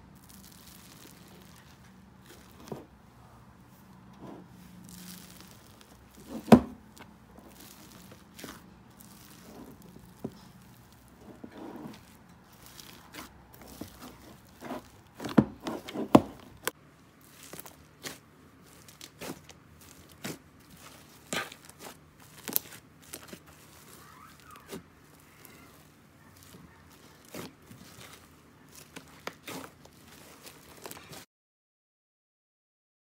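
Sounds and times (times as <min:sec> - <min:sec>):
slime squishing and popping: 0:00.2 - 0:01.7, 0:04.9 - 0:11.2, 0:16.6 - 0:31.2.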